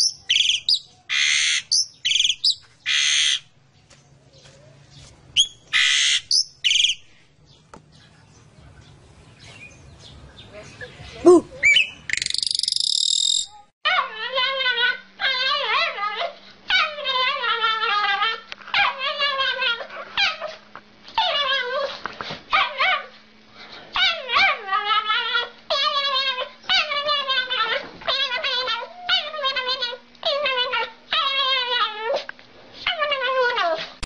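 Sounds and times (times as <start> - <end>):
small dog whining and howling: 13.9 - 20.5, 21.2 - 23.2, 24.0 - 32.2, 32.8 - 33.9.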